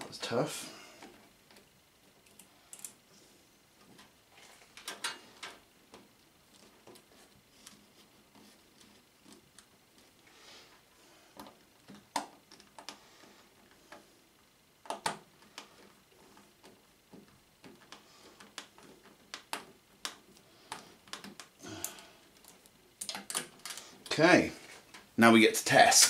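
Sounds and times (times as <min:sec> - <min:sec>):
wires and connectors clicking: 0:01.0 - 0:03.0, 0:11.3 - 0:14.0, 0:14.8 - 0:24.2.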